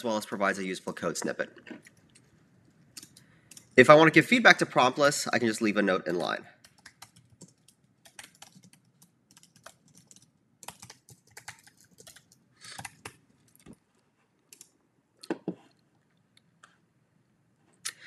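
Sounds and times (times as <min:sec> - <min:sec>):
computer keyboard typing: 0:01.9 - 0:03.8, 0:06.2 - 0:13.8, 0:14.5 - 0:14.8.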